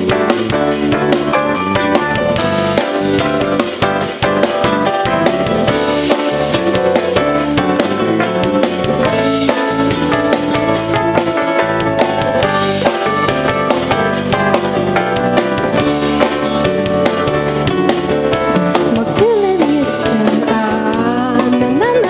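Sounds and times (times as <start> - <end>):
electric guitar: 0.0 - 22.0
keyboards: 0.0 - 22.0
steady drum beat: 0.0 - 22.0
woman singing: 18.6 - 22.0.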